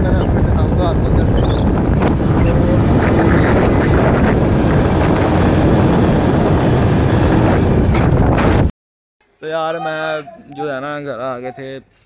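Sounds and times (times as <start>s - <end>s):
wind buffeting microphone: 0.0s - 8.7s
motorcycle engine running: 0.5s - 8.1s.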